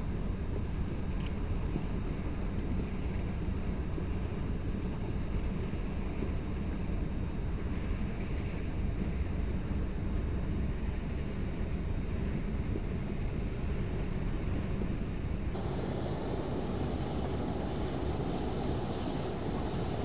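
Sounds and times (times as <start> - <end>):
wind on microphone: 5.8 - 20.0
boat motors: 15.6 - 20.0.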